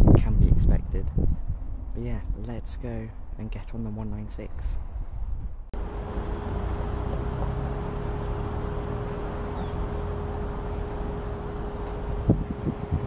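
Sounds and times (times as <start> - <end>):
diesel train engine idling: 5.8 - 13.0.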